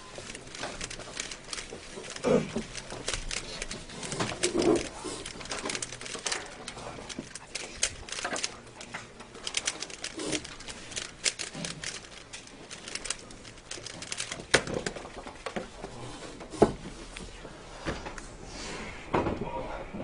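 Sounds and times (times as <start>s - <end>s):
puzzle cube layers clicking: 0.0s - 15.0s.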